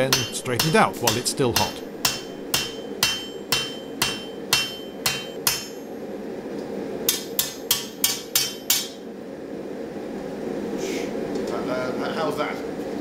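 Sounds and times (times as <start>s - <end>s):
hammer striking metal on anvil: 0.0s - 5.8s, 7.1s - 9.0s
steady low hum: 0.0s - 13.0s.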